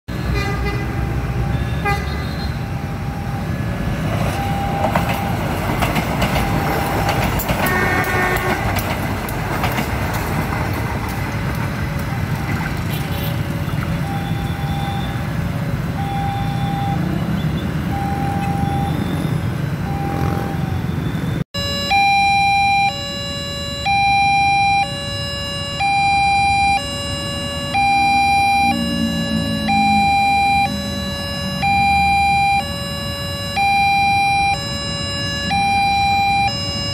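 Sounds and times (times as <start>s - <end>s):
motorcycle and car traffic: 0.1s - 36.9s
vehicle horn: 0.2s - 2.6s, 7.6s - 8.7s
level crossing alarm two-tone signal: 4.3s - 5.4s, 14.0s - 17.1s, 17.9s - 36.9s.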